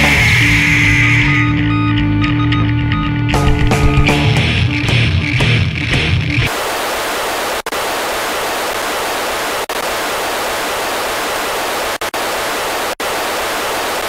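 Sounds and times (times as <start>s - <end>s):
noise rock static hiss: 3.4s - 14.0s.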